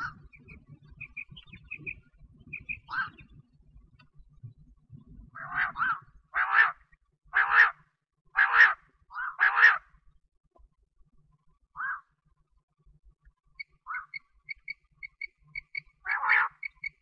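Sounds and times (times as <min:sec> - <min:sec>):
quail calling: 0:00.0 - 0:03.3, 0:05.4 - 0:07.8, 0:08.4 - 0:09.9, 0:11.8 - 0:12.1, 0:13.6 - 0:17.0.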